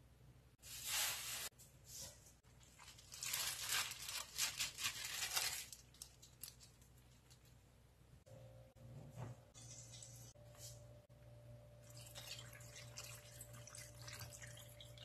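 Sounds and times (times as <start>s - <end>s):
wet crinkling of glove and cabbage: 0.7s - 1.5s, 2.6s - 7.5s.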